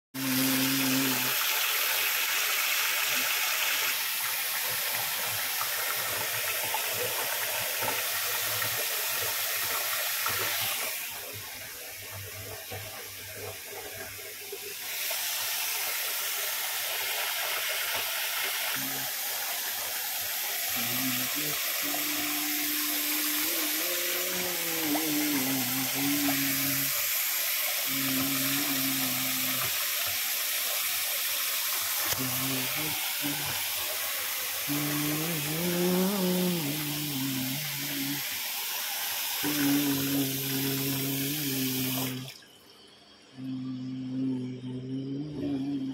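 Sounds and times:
plunger pumping with splashing: 3.6 - 42.5
low wavering hum: 43.2 - 45.9.

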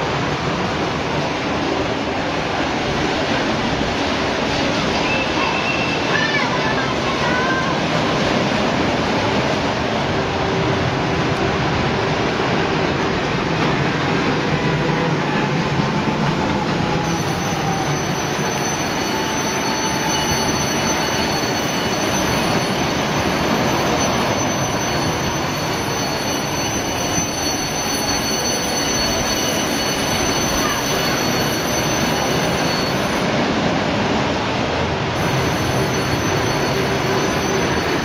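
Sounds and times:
roller coaster wheels rumbling: 0.0 - 38.0
high squeal: 4.3 - 8.3, 14.4 - 33.5, 35.2 - 38.0.

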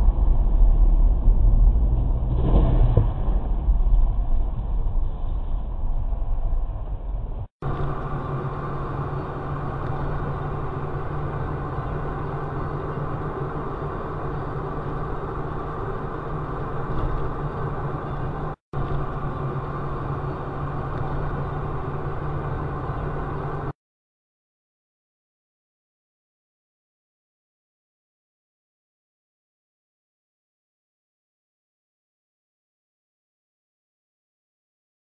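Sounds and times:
vehicle engine and road noise: 0.0 - 23.8.

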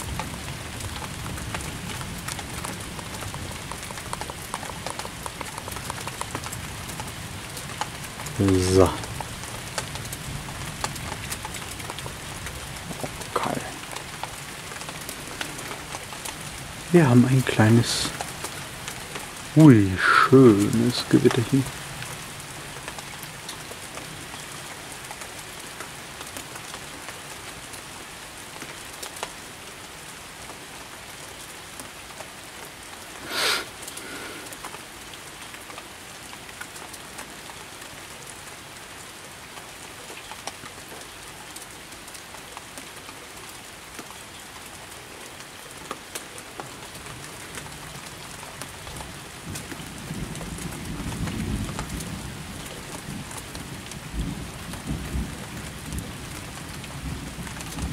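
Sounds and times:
steady rain falling: 0.0 - 57.9
low rumble of thunder: 49.4 - 57.9.

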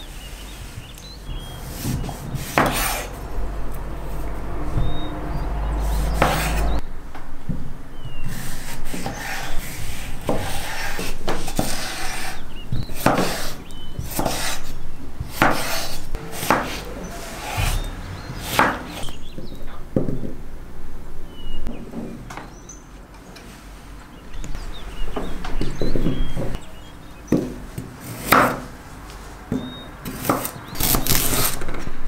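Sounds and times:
knife chopping on wooden board: 1.9 - 3.1, 13.0 - 14.6, 15.3 - 16.8, 18.4 - 19.0.

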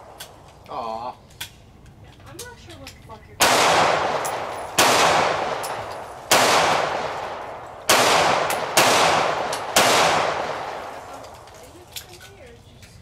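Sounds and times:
gunshots with echo: 3.4 - 11.1.

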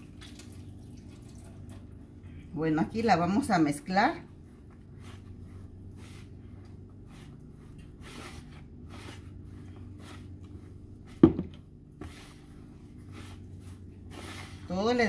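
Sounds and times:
hands rustling in flour: 3.0 - 15.0.

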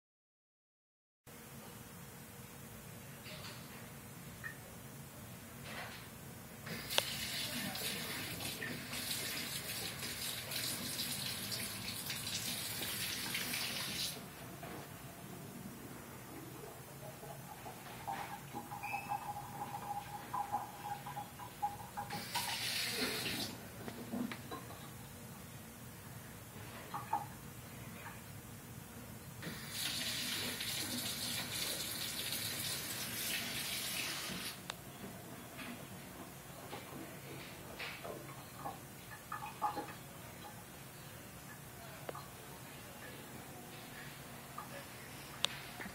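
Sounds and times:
running water from tap: 6.8 - 14.2, 18.6 - 23.5, 29.4 - 34.6.

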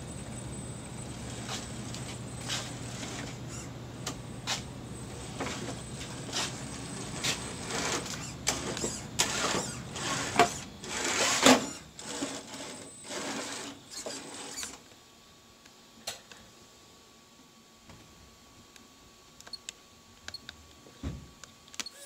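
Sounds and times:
toy car electric motor whirring: 3.1 - 3.7, 7.6 - 14.8.

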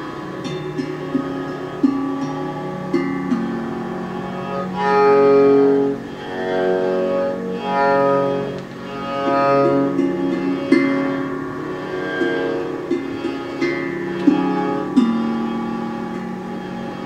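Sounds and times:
keyboard sustained chords: 0.0 - 17.0.

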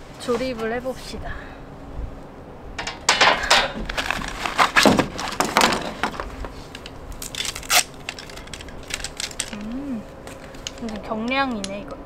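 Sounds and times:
metal poles clattering: 2.8 - 9.7
nylon sack rustling: 3.8 - 6.6.

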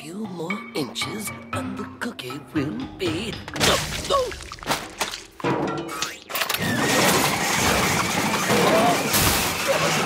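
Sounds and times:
garbage disposal grinding: 4.5 - 10.0.

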